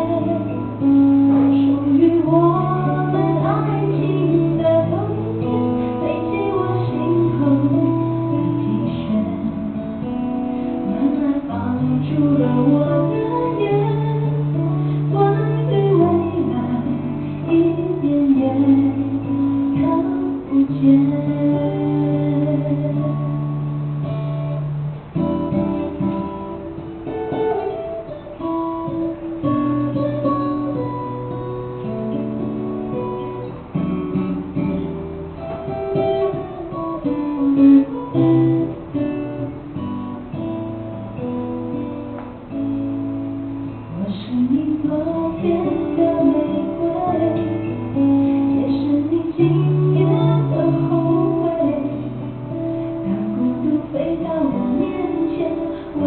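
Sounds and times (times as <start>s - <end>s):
woman singing: 0.0s - 23.8s, 35.7s - 39.9s, 43.7s - 56.0s
acoustic guitar: 0.0s - 56.0s.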